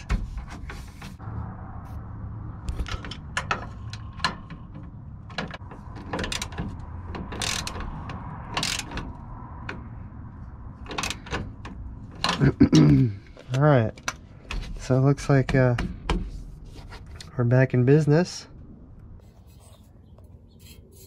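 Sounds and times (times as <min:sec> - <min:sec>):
ratchet wrench clicking: 0:07.2 - 0:09.1.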